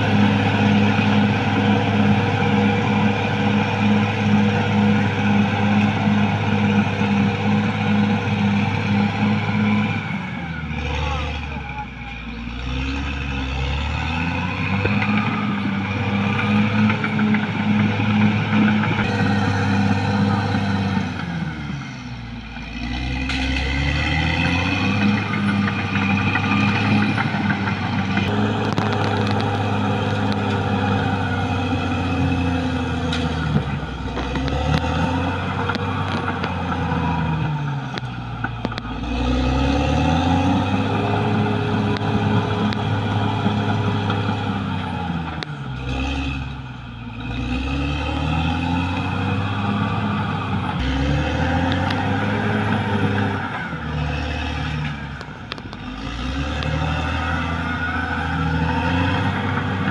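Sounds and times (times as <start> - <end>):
bulldozer diesel engine revving: 0.0 - 59.9.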